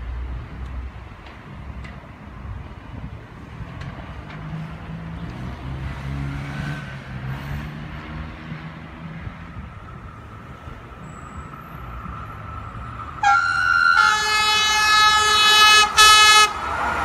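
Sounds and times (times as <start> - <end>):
vehicle engine passing: 4.0 - 17.0.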